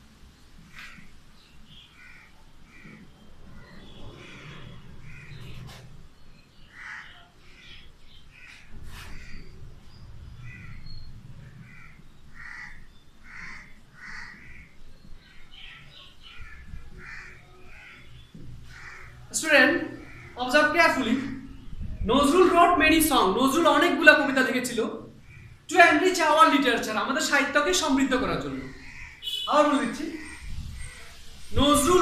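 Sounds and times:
crows cawing: 0:01.7 - 0:05.9, 0:06.7 - 0:09.6, 0:10.4 - 0:21.4, 0:25.2 - 0:25.8, 0:28.4 - 0:29.4.

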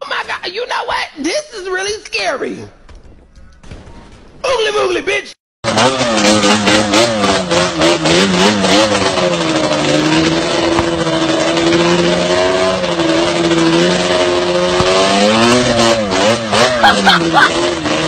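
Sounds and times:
quad bike engine revving: 0:05.6 - 0:18.0.

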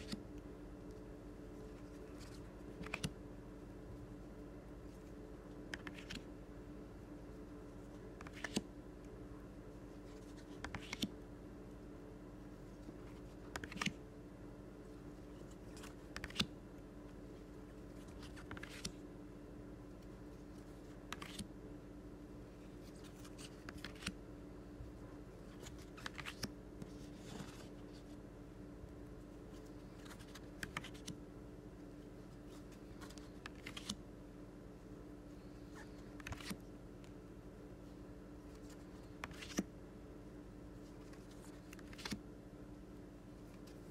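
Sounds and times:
faint steady hum: 0:00.0 - 0:43.9
cards flipped by hand: 0:01.7 - 0:03.2, 0:05.7 - 0:06.3, 0:08.2 - 0:08.7, 0:10.1 - 0:11.2, 0:12.9 - 0:14.0, 0:15.4 - 0:16.5, 0:17.9 - 0:19.0, 0:20.8 - 0:21.5, 0:22.8 - 0:24.2, 0:25.4 - 0:28.1, 0:29.5 - 0:31.2, 0:32.5 - 0:34.0, 0:36.1 - 0:36.6, 0:38.5 - 0:39.7, 0:40.9 - 0:42.2.

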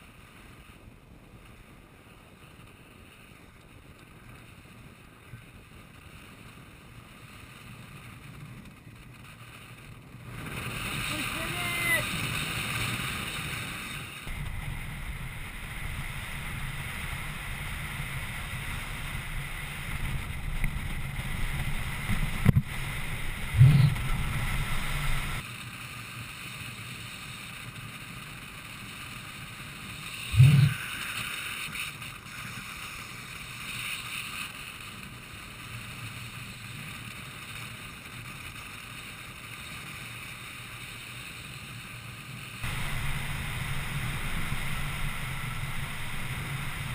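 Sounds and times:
skate wheels rolling on asphalt: 0:00.0 - 0:46.9
wind rushing over microphone: 0:10.1 - 0:25.4, 0:30.3 - 0:30.9, 0:42.6 - 0:46.9.

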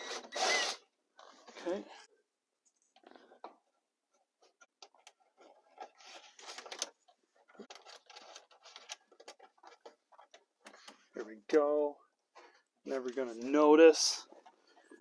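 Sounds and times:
wires scratching behind plastic trim: 0:04.4 - 0:10.9.

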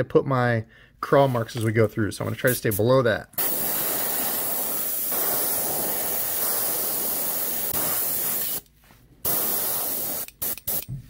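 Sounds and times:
airbrush spraying hiss: 0:03.4 - 0:10.9.

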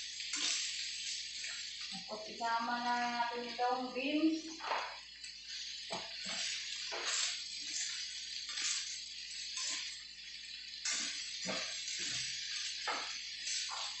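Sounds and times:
food sizzling in a wok: 0:00.0 - 0:14.0
spatula scraping and clattering wok: 0:00.2 - 0:02.1, 0:04.6 - 0:10.0, 0:10.6 - 0:14.0.

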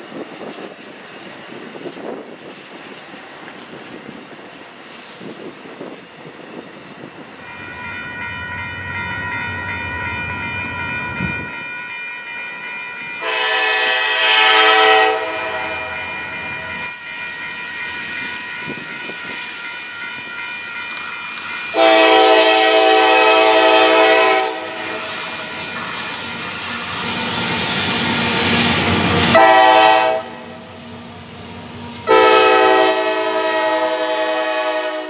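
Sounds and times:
train rumble: 0:00.0 - 0:11.7, 0:12.7 - 0:35.0
steady high ringing tone: 0:05.8 - 0:13.7, 0:15.6 - 0:21.9
train air horn blasts: 0:13.2 - 0:16.2, 0:21.7 - 0:25.6, 0:29.2 - 0:30.6, 0:32.0 - 0:35.0.

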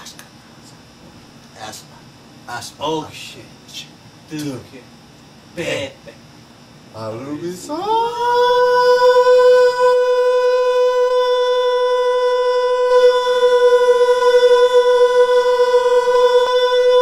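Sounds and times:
long steady held note: 0:07.3 - 0:17.0.

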